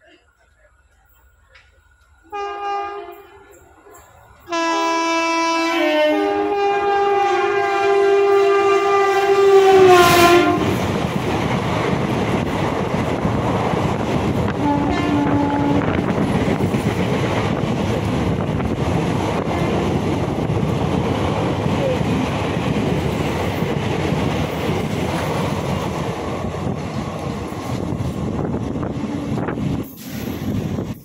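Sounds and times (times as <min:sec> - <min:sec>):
train coaches rushing past: 0:00.0 - 0:31.0
train horn: 0:02.3 - 0:03.5, 0:04.4 - 0:10.9, 0:14.5 - 0:16.2.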